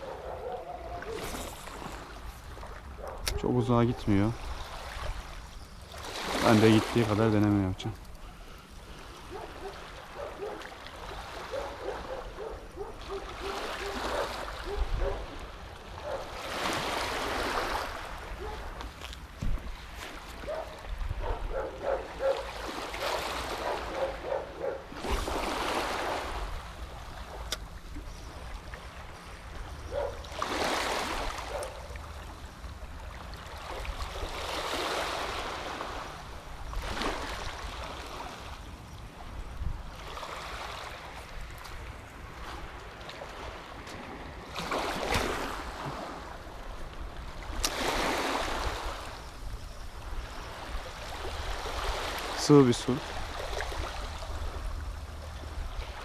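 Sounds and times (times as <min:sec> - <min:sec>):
small waves washing on shore: 0:00.0 - 0:56.0
wind rumble on microphone: 0:14.1 - 0:15.4, 0:17.9 - 0:22.3, 0:39.1 - 0:40.0.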